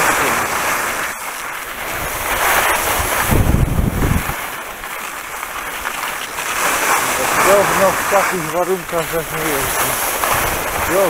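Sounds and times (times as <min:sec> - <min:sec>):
wind rushing over microphone: 0:01.9 - 0:04.4.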